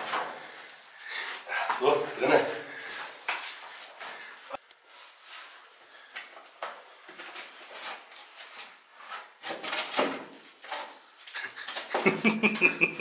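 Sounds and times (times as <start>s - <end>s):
shuffling: 0.0s - 9.4s.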